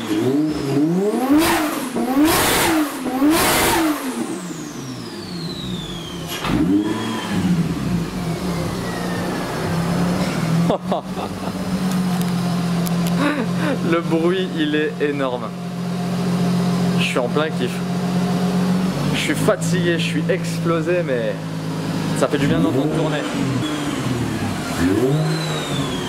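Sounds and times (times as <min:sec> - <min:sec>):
car engine idling: 0:00.0 - 0:26.0
car engine revving: 0:00.0 - 0:26.0
turbo whistle: 0:08.2 - 0:09.8.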